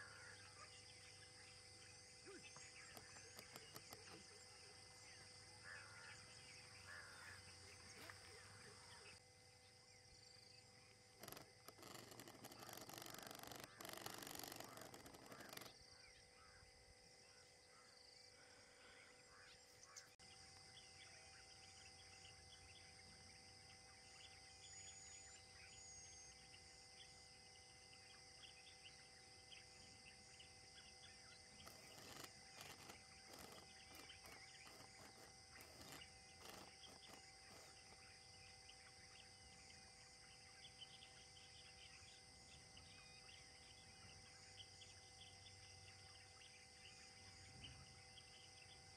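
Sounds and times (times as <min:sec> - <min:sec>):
high insect-like hiss: 0:00.0 - 0:48.9
small scattered chirps: 0:02.2 - 0:05.1, 0:11.1 - 0:15.8, 0:31.5 - 0:38.2.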